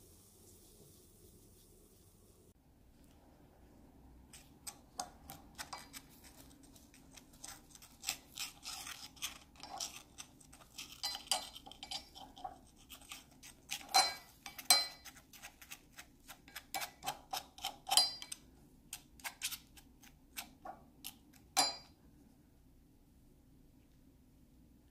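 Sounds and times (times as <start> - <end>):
faint room hum: 0.0 - 24.9
palette knife scraping skillet: 4.3 - 20.6.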